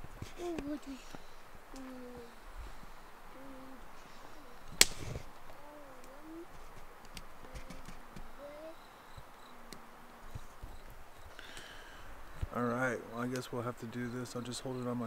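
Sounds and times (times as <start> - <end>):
campfire crackling: 0.0 - 15.0
faint low wavering calls: 0.0 - 15.0
sharp loud pop of fire: 4.8 - 5.2.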